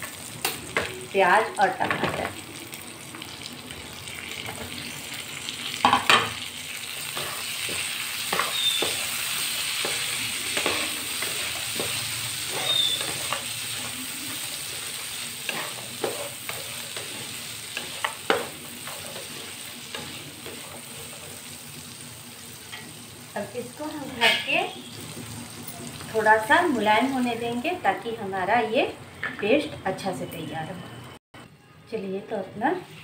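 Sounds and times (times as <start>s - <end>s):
food sizzling in hot oil: 0.0s - 29.7s
wooden spatula knocking and scraping pan: 7.1s - 13.5s, 14.8s - 20.8s.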